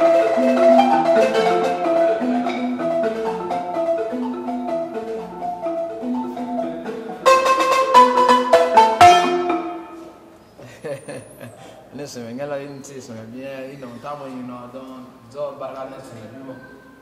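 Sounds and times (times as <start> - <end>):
balafons playing melody: 0.0 - 10.5.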